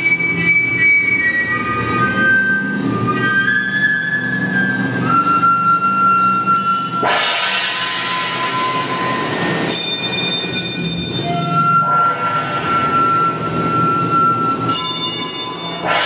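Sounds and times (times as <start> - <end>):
cymbal scraping against strings: 0.0 - 16.0
bright metallic ringing: 5.7 - 16.0.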